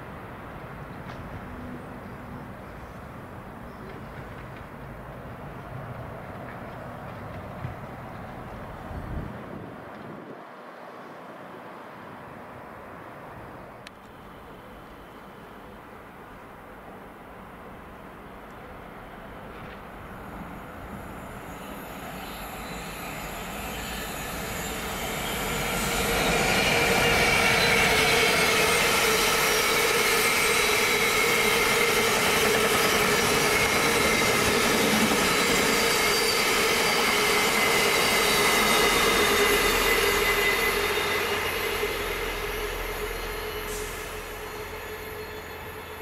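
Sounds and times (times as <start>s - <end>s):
diesel locomotive engine: 13.4s - 46.0s
wheel squeal: 21.5s - 46.0s.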